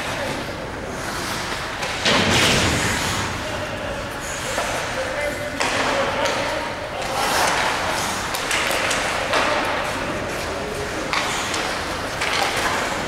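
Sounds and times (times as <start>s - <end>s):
hockey sticks and puck clacking: 0.0s - 2.6s, 4.1s - 13.0s.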